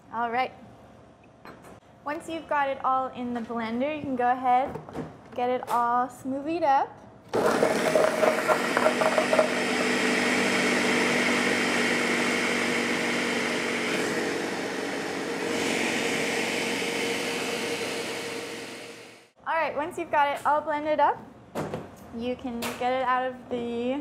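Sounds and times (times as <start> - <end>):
blender motor drone: 7.4 - 19.3.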